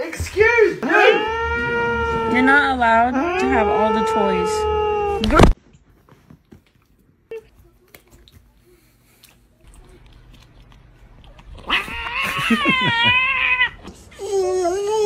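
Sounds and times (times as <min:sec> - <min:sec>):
cat yowling: 0:01.0 - 0:05.6, 0:11.7 - 0:13.8.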